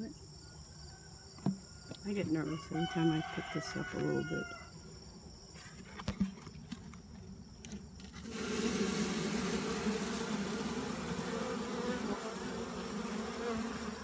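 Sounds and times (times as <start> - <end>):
honeybees buzzing: 8.1 - 14.0.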